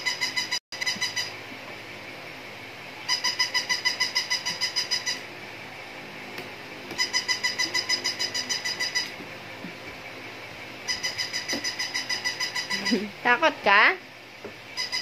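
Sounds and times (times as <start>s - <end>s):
toy robot electronic chirping beeps: 0.0s - 1.3s, 3.1s - 5.2s, 7.0s - 9.2s, 10.9s - 13.0s, 14.8s - 15.0s.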